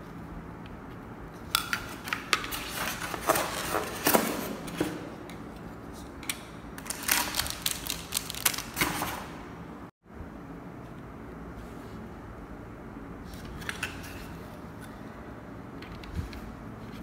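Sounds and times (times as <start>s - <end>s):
plastic bag crinkling: 6.8s - 9.2s.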